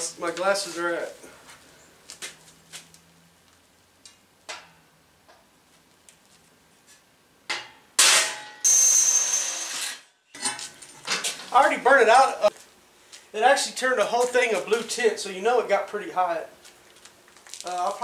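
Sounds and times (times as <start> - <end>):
cordless drill whining through steel: 8.7 - 10.0.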